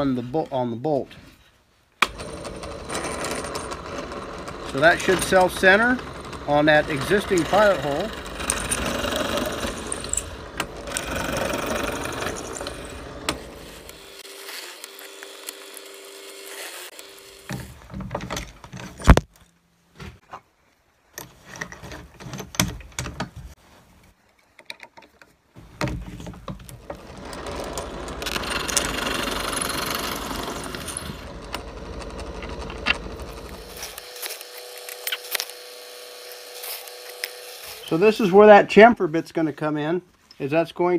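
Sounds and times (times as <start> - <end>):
power drill boring through wood: 2.0 - 17.9, 26.7 - 38.6.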